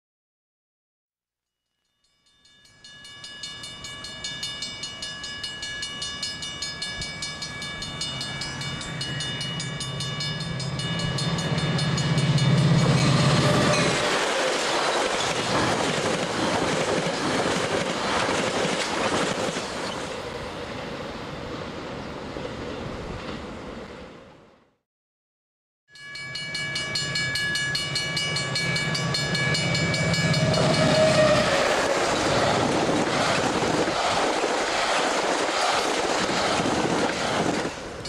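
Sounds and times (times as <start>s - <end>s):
crossing bell ringing: 1.8s - 14.2s, 25.9s - 32.7s
train cars rumbling past: 3.7s - 24.6s, 27.0s - 38.0s
diesel locomotive engine: 4.0s - 24.5s, 26.9s - 38.0s.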